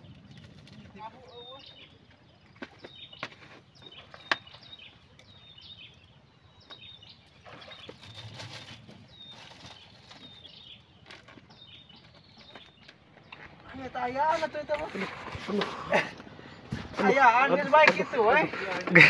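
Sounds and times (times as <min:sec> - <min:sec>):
soft rustle: 0:07.4 - 0:12.8.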